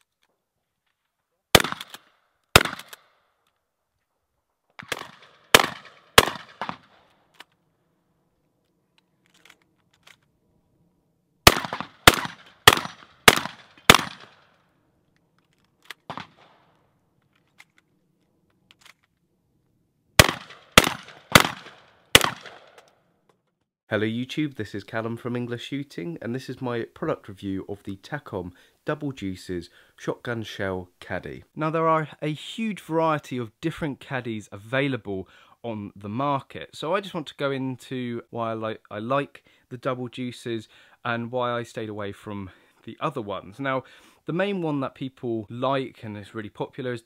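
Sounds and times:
shotgun shots with echo: 1.6 - 2.0, 2.6 - 3.0, 4.8 - 7.0, 11.4 - 14.5, 16.1 - 16.6, 20.2 - 22.8.

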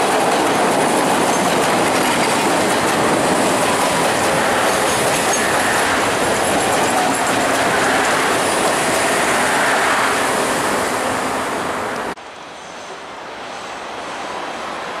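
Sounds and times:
approaching train rail noise: 0.0 - 15.0
train wheels rushing on rail: 0.0 - 15.0.

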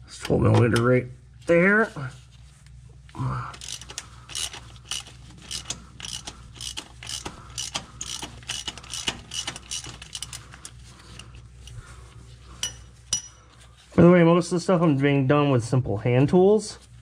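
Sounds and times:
hand ratchet clicking: 3.6 - 11.2.

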